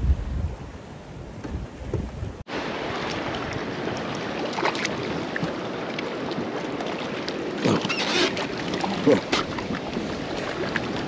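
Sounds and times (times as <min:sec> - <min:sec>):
wind on microphone: 0:00.0 - 0:04.2
small waves splashing against hull: 0:00.7 - 0:11.0.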